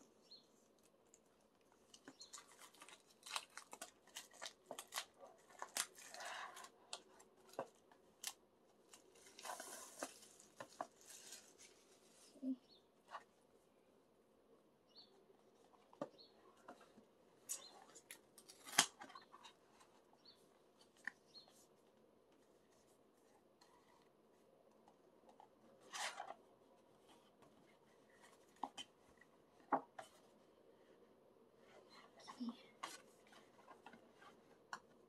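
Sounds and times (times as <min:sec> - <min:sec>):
cardboard album being handled: 0:01.9 - 0:12.4.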